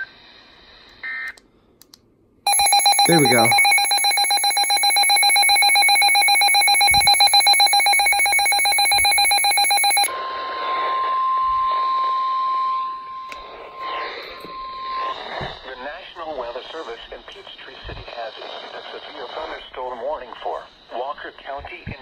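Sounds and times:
weather radio alarm beeping: 0:02.5 - 0:10.1
steady warning alarm tone: 0:02.5 - 0:10.2
radio hiss: 0:15.1 - 0:22.0.

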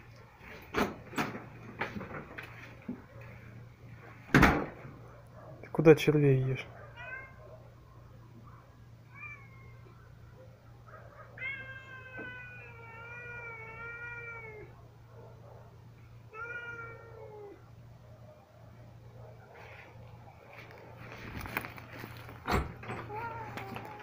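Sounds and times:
cats meowing: 0:07.0 - 0:07.4, 0:09.0 - 0:10.2, 0:11.1 - 0:14.8, 0:16.2 - 0:17.7, 0:22.8 - 0:24.0.

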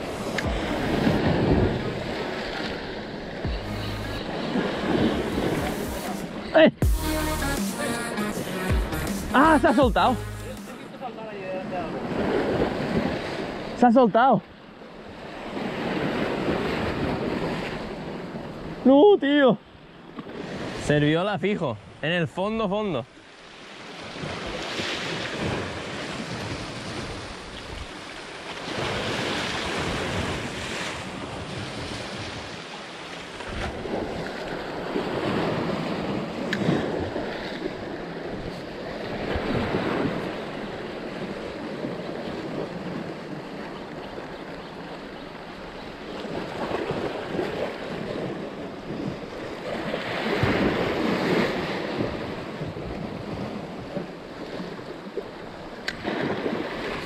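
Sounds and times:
waves washing against rocks: 0:00.0 - 0:03.5, 0:23.7 - 0:44.3, 0:45.6 - 0:57.0.

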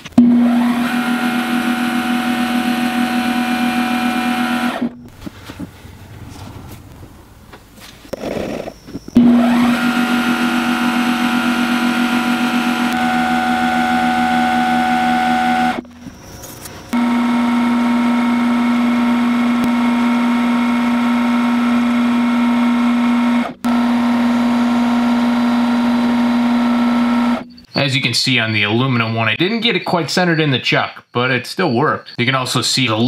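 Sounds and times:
lathe motor humming and whining: 0:00.2 - 0:07.2, 0:09.2 - 0:16.2, 0:16.9 - 0:27.6.

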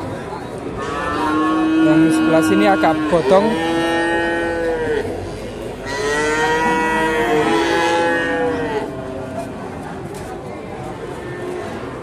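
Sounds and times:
cow mooing: 0:00.8 - 0:05.1, 0:05.8 - 0:08.9.

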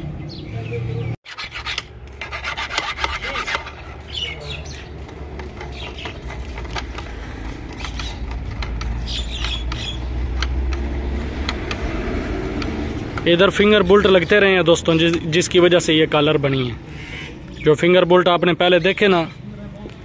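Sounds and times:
steel tool scraping metal: 0:01.3 - 0:04.0.

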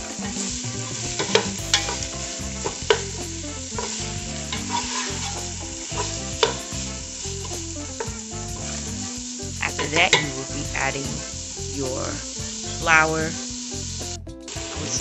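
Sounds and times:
food sizzling in a pot: 0:00.0 - 0:15.0
wooden spoon knocking pan: 0:01.0 - 0:12.9.

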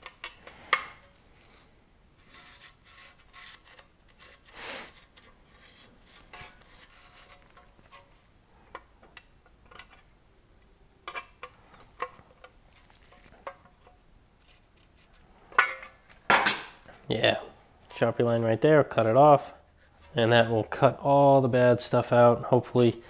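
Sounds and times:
marker scratching on steel: 0:02.2 - 0:08.1, 0:14.4 - 0:15.3, 0:19.5 - 0:20.2.

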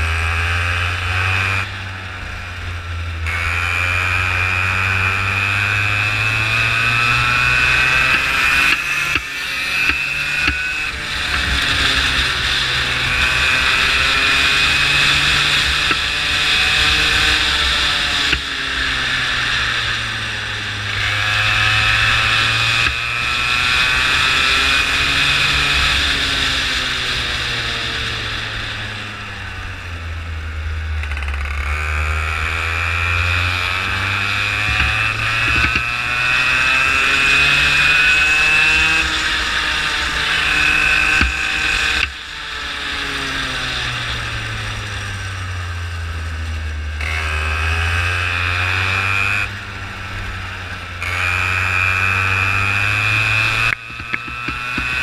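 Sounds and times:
go-kart engine revving: 0:00.0 - 0:55.0.

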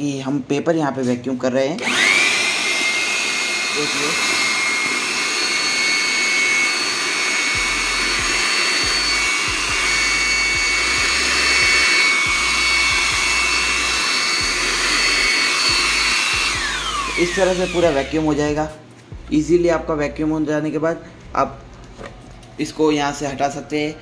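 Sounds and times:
electric blower whine: 0:01.8 - 0:19.6.

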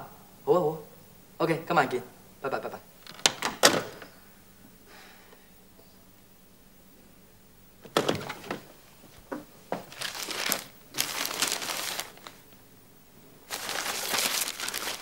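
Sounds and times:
paper or plastic crinkling: 0:09.9 - 0:12.6, 0:13.5 - 0:15.0.

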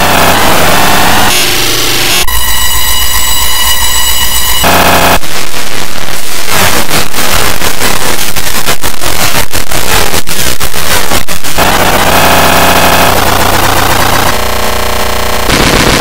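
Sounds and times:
harsh distorted noise: 0:00.0 - 0:16.0.

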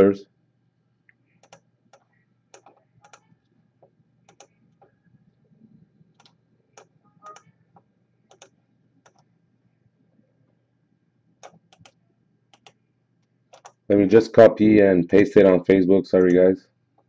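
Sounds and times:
computer mouse clicking: 0:01.4 - 0:03.4, 0:04.3 - 0:05.0, 0:06.1 - 0:09.3, 0:11.4 - 0:12.8, 0:13.5 - 0:13.8.

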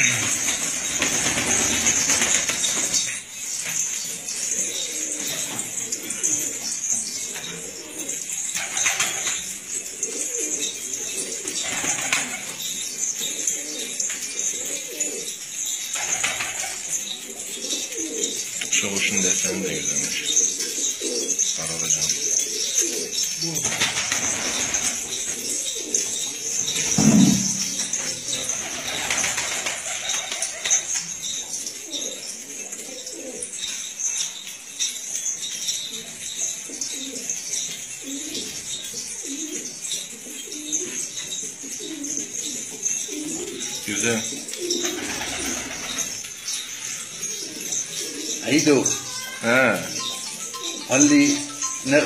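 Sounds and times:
wings flapping: 0:00.0 - 0:03.1, 0:08.6 - 0:09.4, 0:11.6 - 0:12.6, 0:16.0 - 0:16.9, 0:23.6 - 0:25.6, 0:26.9 - 0:31.0, 0:44.6 - 0:46.3
pigeons cooing: 0:00.0 - 0:52.0
high-pitched background hiss: 0:41.7 - 0:52.0.

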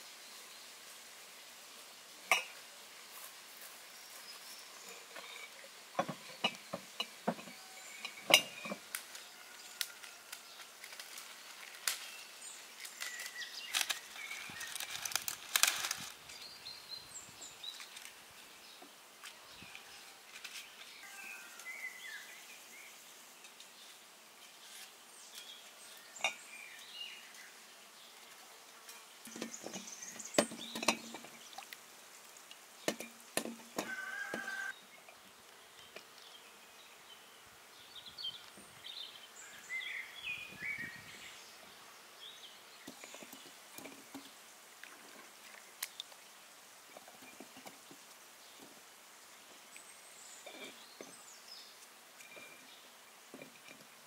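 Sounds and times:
quiet outdoor background noise: 0:00.0 - 0:54.0.

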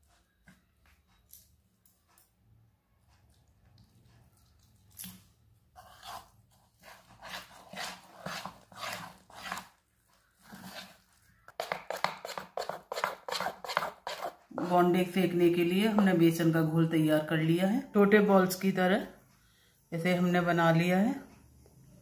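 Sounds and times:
spoon beating batter in a bowl: 0:03.2 - 0:16.4.

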